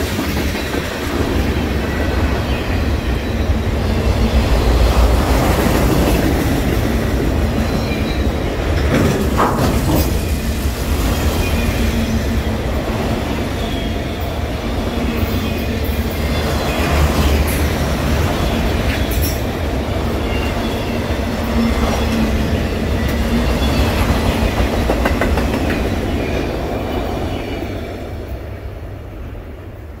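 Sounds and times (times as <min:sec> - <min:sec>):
train wheels rumbling and clacking: 0:00.0 - 0:29.0
train wheel squeals: 0:07.0 - 0:28.0.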